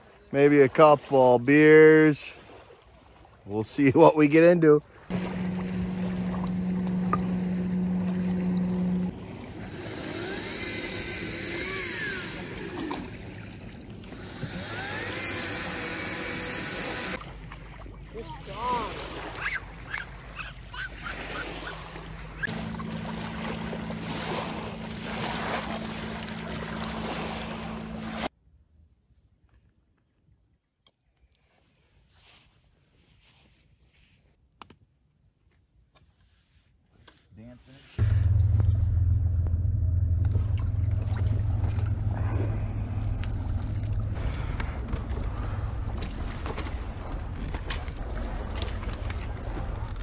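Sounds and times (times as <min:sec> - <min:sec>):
waves lapping on shore: 0:00.0 - 0:28.3
water sloshing: 0:04.8 - 0:28.3, 0:38.0 - 0:50.0
steady low rumble: 0:05.1 - 0:17.2, 0:22.4 - 0:28.3, 0:38.0 - 0:50.0
boat motor humming: 0:05.1 - 0:28.3, 0:38.0 - 0:50.0.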